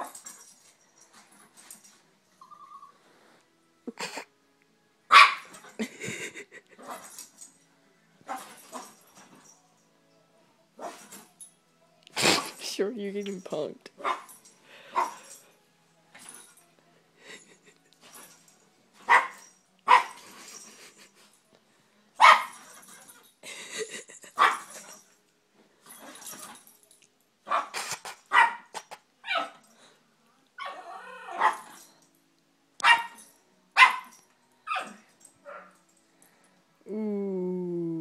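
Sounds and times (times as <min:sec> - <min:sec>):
dogs barking in sharp yaps: 0:05.1 - 0:05.5, 0:32.8 - 0:33.2.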